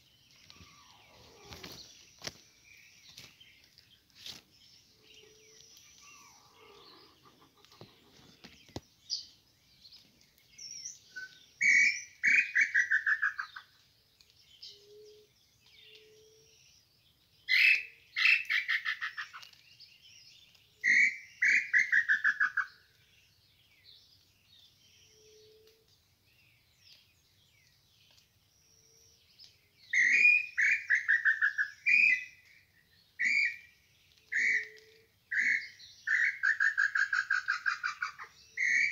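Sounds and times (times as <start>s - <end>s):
bird calling with downward trills: 0.0s - 9.4s, 10.4s - 13.8s, 17.5s - 19.6s, 20.7s - 23.0s, 28.2s - 38.9s.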